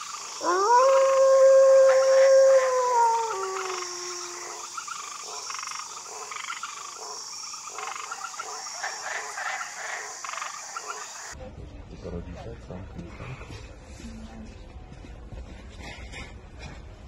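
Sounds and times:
wolf howling: 0.4s - 4.8s
rasping croaking calls: 2.8s - 11.4s.

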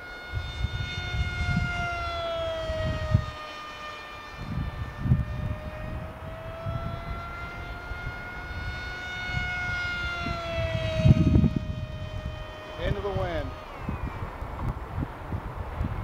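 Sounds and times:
model plane propeller whining: 0.0s - 16.0s.

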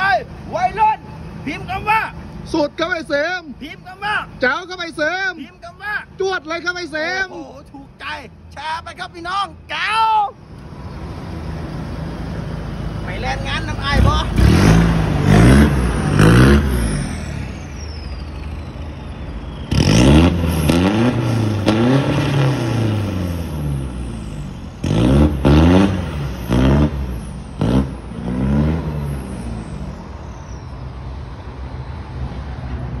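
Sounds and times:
diesel truck engine revving: 10.4s - 33.0s.

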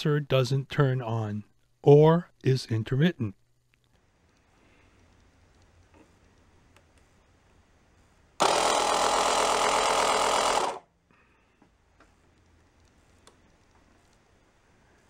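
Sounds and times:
small air compressor running: 8.4s - 10.9s.

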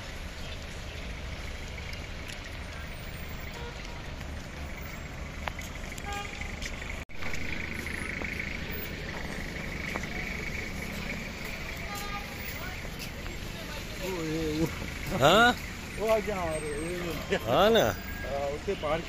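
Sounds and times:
distant traffic rumble: 0.0s - 19.0s.

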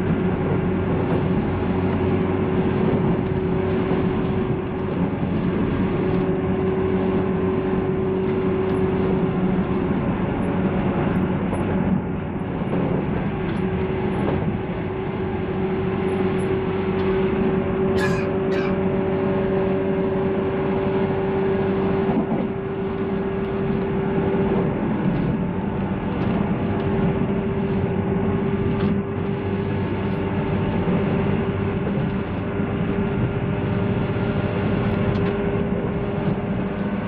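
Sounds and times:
train wheels rumbling on rail: 0.0s - 37.0s.

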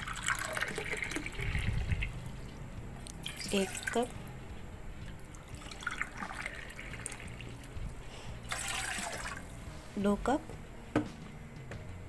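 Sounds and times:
water pouring into metal saucepan: 0.0s - 2.6s, 3.2s - 4.1s, 5.2s - 7.8s, 8.5s - 9.5s.

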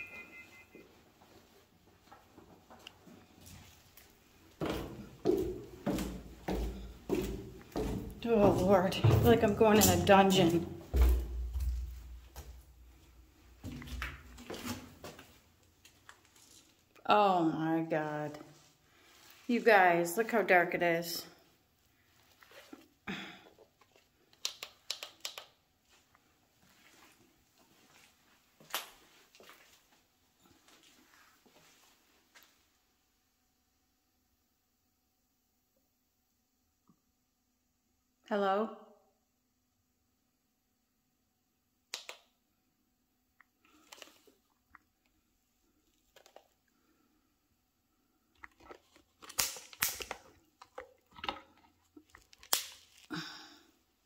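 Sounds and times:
footsteps on gritty debris: 4.6s - 12.6s.

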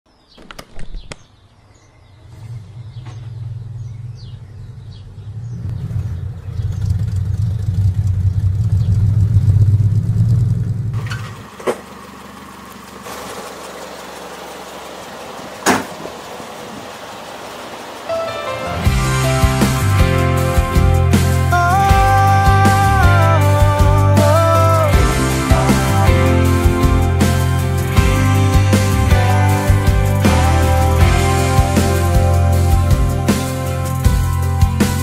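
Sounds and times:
engine humming: 1.1s - 35.0s.

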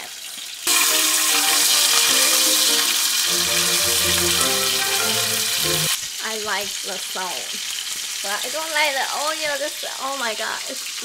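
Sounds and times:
steak sizzling in frying pan: 0.7s - 5.9s
background music: 0.7s - 6.0s.

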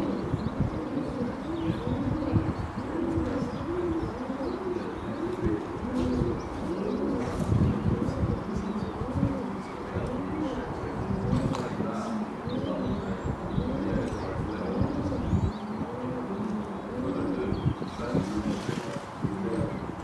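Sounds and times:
pigeons cooing: 0.0s - 20.0s
small birds chirping: 0.0s - 20.0s.

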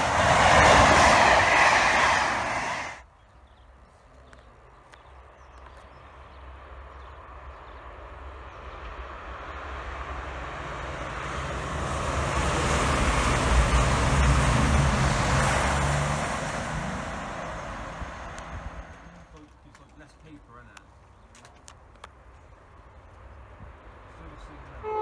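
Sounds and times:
train wheels rushing on rails: 0.0s - 3.0s, 8.8s - 20.2s
diesel train engines droning: 0.0s - 3.1s, 4.2s - 20.8s, 22.6s - 25.0s.

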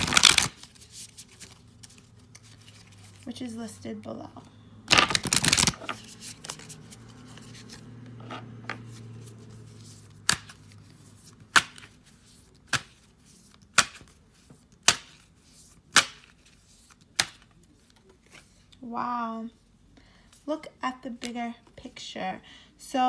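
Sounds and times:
cards rustling: 0.0s - 3.4s, 4.9s - 18.8s.

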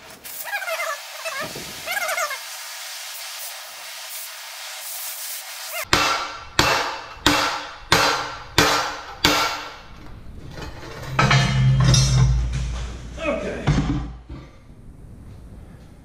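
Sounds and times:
cutting torch hissing: 0.0s - 5.9s.

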